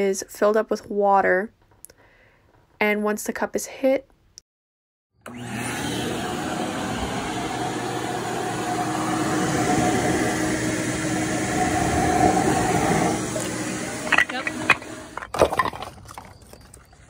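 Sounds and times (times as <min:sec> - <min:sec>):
shop vacuum running: 0:05.2 - 0:15.3.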